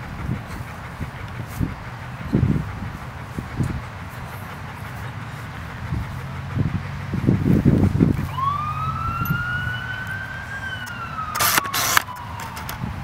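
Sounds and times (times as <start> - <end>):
low rumbling noise: 0.0 - 12.0
emergency siren wailing: 8.3 - 13.0.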